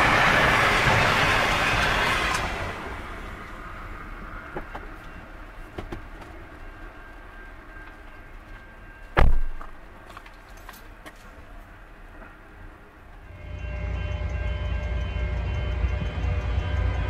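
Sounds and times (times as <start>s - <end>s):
freight train rumble: 0.0s - 17.0s
train wagons clicking: 0.0s - 17.0s
faint steady high tone: 13.2s - 17.0s.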